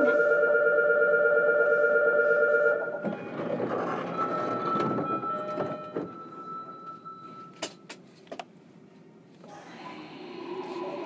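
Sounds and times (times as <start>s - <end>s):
electronic door-closing chime: 2.5s - 7.8s
train doors sliding shut: 3.0s - 6.4s.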